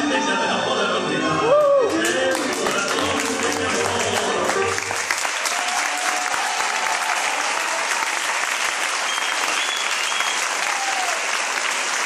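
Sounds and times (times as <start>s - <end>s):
music: 0.0s - 5.5s
audience applauding: 1.5s - 12.0s.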